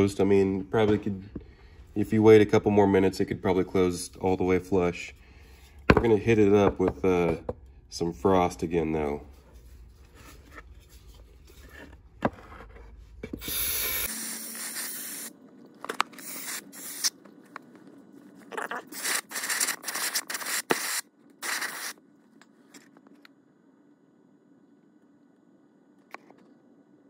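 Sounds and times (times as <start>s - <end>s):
aerosol spray can hissing: 13.4s - 15.3s, 16.2s - 17.2s, 18.9s - 22.0s.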